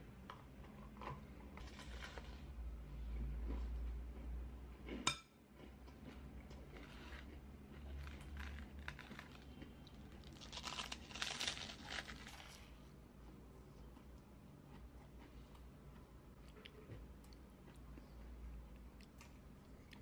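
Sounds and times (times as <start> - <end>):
toasted sandwich crackling and tearing: 8.0 - 12.7.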